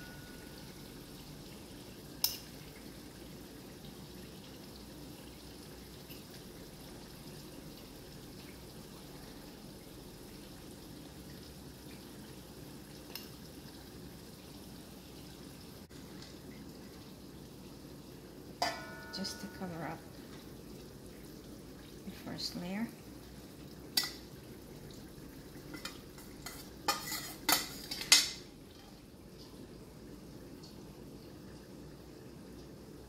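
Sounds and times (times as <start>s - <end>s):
low background hum: 0.0s - 33.0s
metal spoon clinking on cookware: 18.6s - 19.7s, 25.7s - 28.4s.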